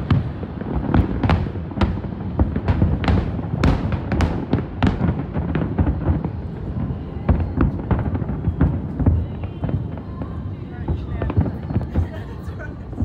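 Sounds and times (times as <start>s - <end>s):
low rumble of distant explosions: 0.0s - 13.0s.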